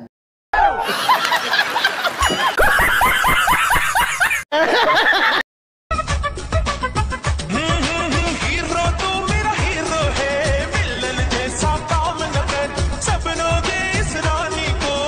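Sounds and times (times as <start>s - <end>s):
people laughing heartily: 0.6s - 5.4s.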